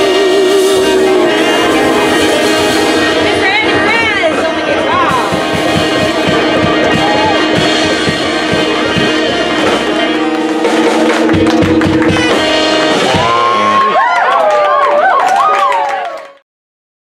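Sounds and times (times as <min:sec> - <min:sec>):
drums keeping steady beat: 0:00.0 - 0:14.1
small jazz band playing live: 0:00.0 - 0:14.8.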